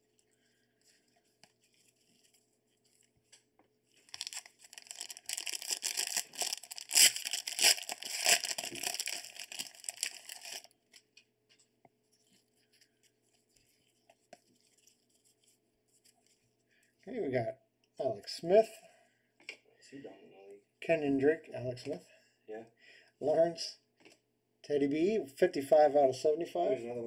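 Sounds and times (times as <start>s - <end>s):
plastic wrapper tearing and crinkling: 4.0s - 11.1s.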